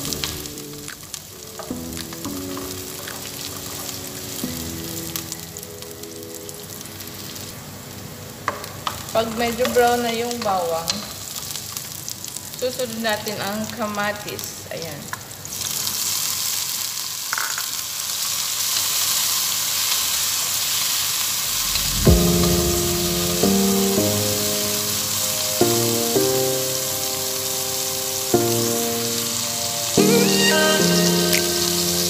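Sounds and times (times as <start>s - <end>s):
tomatoes sizzling in oil: 0.0s - 14.2s, 15.0s - 32.0s
background music with chords: 21.6s - 32.0s.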